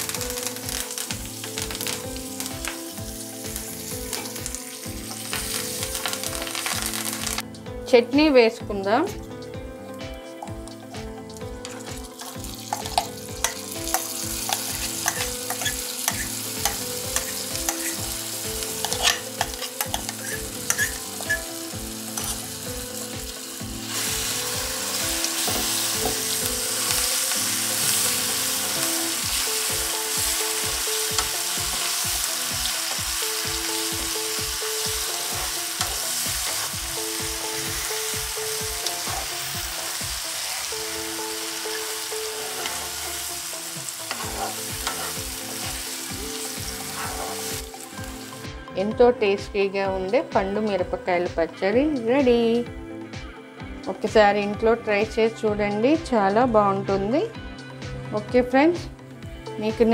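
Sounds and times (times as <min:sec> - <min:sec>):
paste sizzling in hot oil: 0:00.0 - 0:07.4, 0:11.6 - 0:48.5
spoon stirring and scraping pan: 0:11.6 - 0:21.5, 0:22.1 - 0:22.5, 0:35.0 - 0:37.9, 0:38.6 - 0:39.6, 0:44.1 - 0:47.8.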